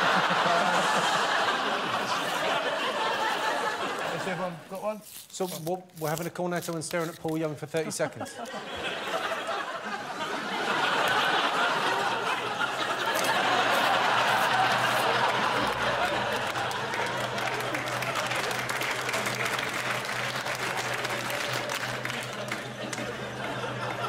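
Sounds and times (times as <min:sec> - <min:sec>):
audience laughing: 0:00.0 - 0:04.8, 0:07.7 - 0:24.0
audience clapping: 0:10.6 - 0:24.0.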